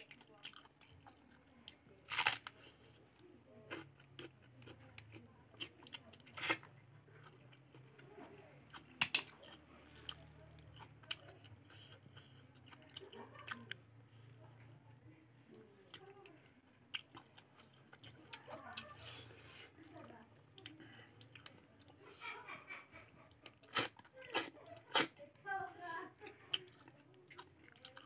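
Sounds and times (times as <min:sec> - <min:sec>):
chewing and crunching food: 0:00.0 - 0:14.6, 0:15.4 - 0:25.3, 0:26.2 - 0:28.0
crunchy bites: 0:02.0 - 0:02.6.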